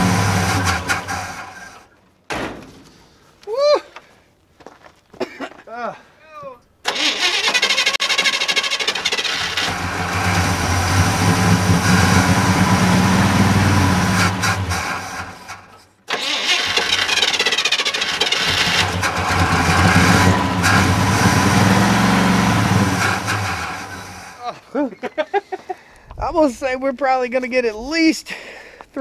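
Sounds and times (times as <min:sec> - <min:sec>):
pickup truck engine running: 0:08.8 - 0:15.5, 0:16.7 - 0:24.3.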